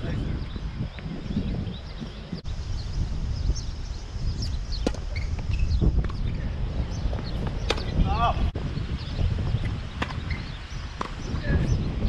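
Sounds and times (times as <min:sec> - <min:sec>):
birds chirping: 0:00.0 - 0:12.0
wind rumbling on microphone: 0:00.0 - 0:12.0
tennis ball pops: 0:07.6 - 0:07.9.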